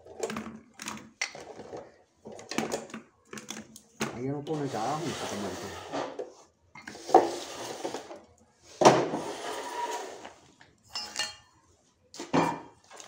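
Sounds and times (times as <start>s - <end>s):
plastic bottles knocking together: 0.0s - 4.4s
tray scraping on steel table: 4.5s - 6.3s, 6.9s - 8.2s, 9.0s - 10.4s.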